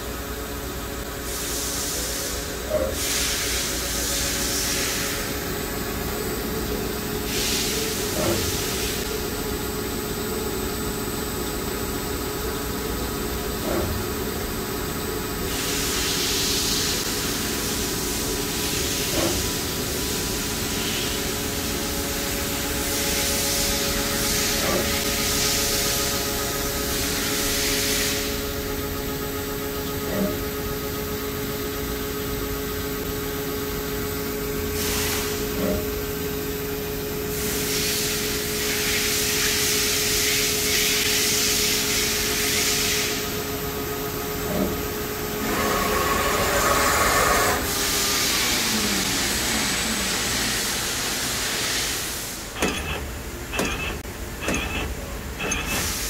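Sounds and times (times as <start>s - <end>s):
lathe machine hum: 43.3s - 52.5s.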